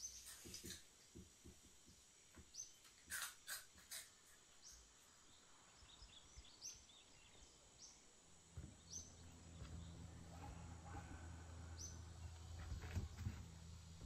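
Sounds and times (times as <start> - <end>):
soft bird chirps: 1.8 - 14.0
low steady hum: 5.1 - 14.0
bird calls: 8.6 - 13.6.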